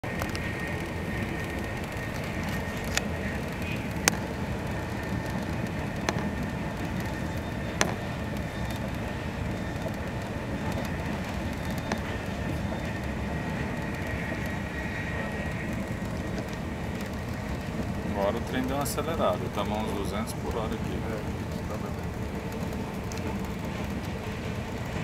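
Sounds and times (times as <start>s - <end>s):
faint steady whine: 0.0s - 25.0s
train rumble inside passenger car: 0.0s - 25.0s.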